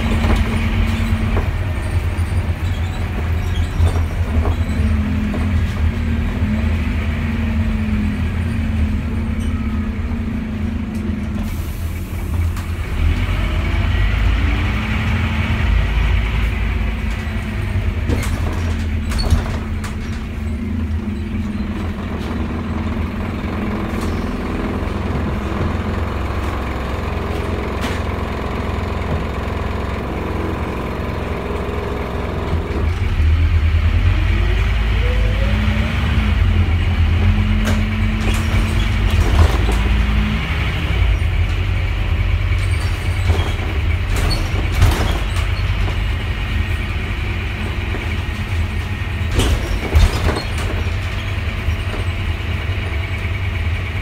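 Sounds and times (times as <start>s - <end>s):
bus diesel engine rumbling: 0.0s - 54.0s
body knocks and rattles: 47.7s - 52.2s.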